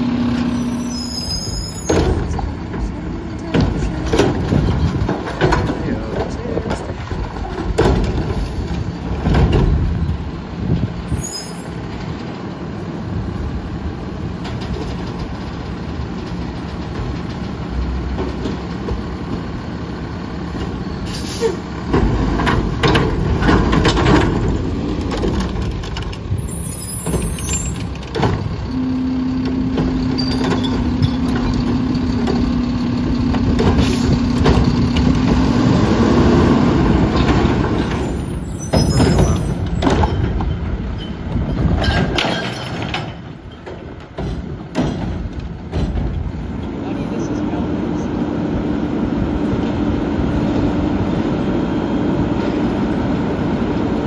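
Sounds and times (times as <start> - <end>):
diesel engine revving: 0.0 - 14.4, 15.0 - 42.2, 44.4 - 54.0
sharp knocks of cart: 1.9 - 10.0, 21.8 - 26.4, 27.0 - 28.7, 33.2 - 35.6, 37.0 - 46.4
air brake hisses: 21.0 - 21.6.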